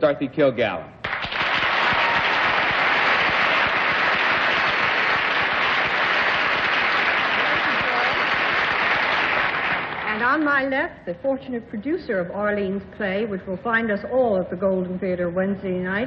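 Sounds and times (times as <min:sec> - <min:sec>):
audience applauding: 0:01.0 - 0:10.4.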